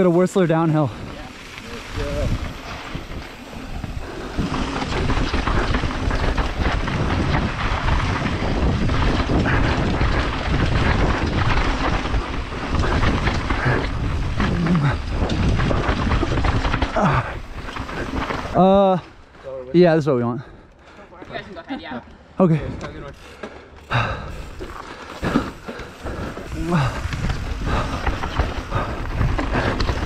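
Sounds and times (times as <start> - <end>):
mountain bike rumbling on dirt trail: 0.0 - 19.5, 22.5 - 30.0
wind buffeting microphone: 0.8 - 18.6, 23.9 - 30.0.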